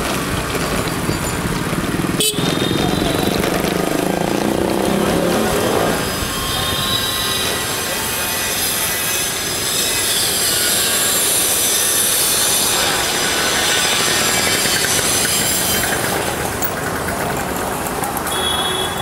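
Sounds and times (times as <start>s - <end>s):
street traffic noise: 0.0s - 19.0s.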